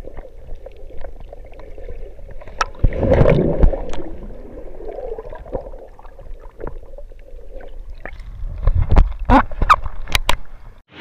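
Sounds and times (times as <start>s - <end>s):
sharp clicks and pops: 8.0s - 10.5s.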